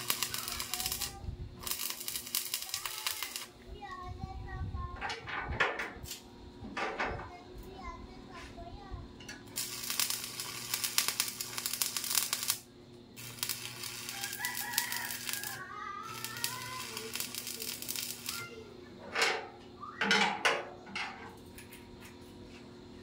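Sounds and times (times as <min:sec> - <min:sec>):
arc welding crackle: 0:00.0 - 0:03.6, 0:09.4 - 0:18.7
rooster crowing: 0:13.9 - 0:16.3.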